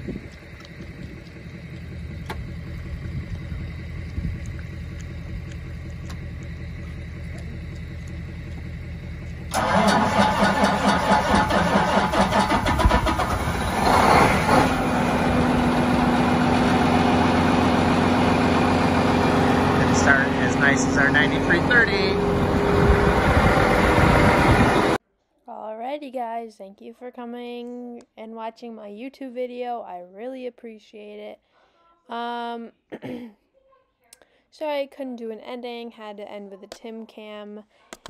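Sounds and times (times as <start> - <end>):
tractor diesel engine: 0.0 - 25.0.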